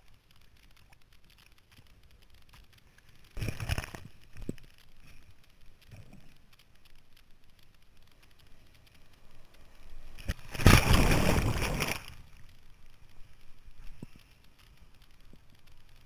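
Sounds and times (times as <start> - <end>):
rush of water and wind: 9.2 - 12.4
whitewater splash: 10.3 - 12.2.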